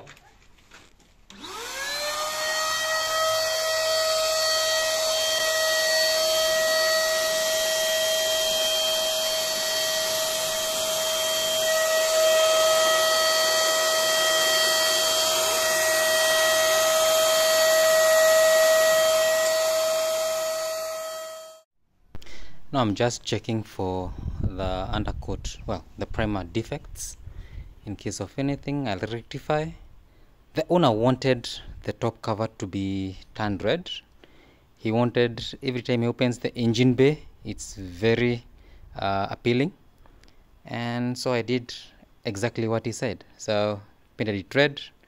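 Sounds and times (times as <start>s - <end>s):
electric paint spray gun whine: 1.3s - 21.7s.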